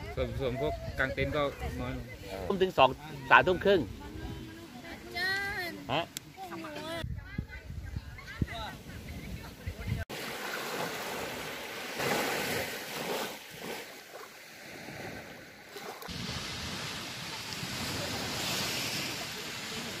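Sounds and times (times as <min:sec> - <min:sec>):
waves breaking on beach: 0:08.5 - 0:20.0.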